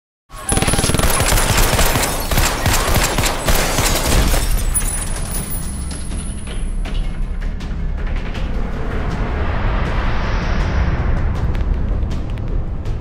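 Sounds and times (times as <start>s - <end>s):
rapid automatic gunfire: 0.4s - 4.5s.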